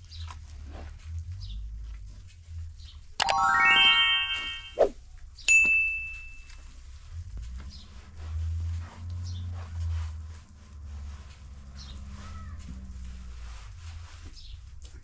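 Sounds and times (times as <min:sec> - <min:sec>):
metallic ring of steel basin: 0:05.5 - 0:06.5
hands kneading dough: 0:12.3 - 0:15.0.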